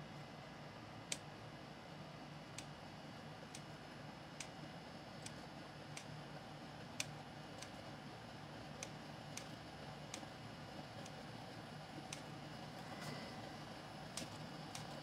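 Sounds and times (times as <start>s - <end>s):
low steady hum: 0.0s - 15.0s
scissors snipping clicks: 7.0s - 7.8s, 12.0s - 12.3s, 14.1s - 15.0s.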